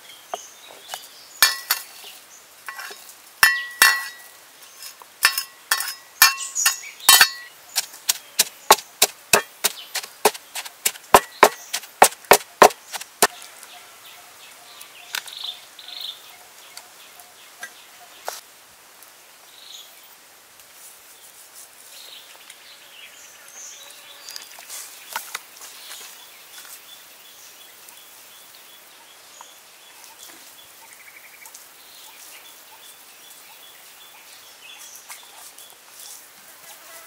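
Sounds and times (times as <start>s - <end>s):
clinks off ceramic plate: 1.4s - 1.9s, 2.7s - 4.3s, 5.2s - 7.5s
wooden pestle pounding in mortar: 5.7s - 13.3s.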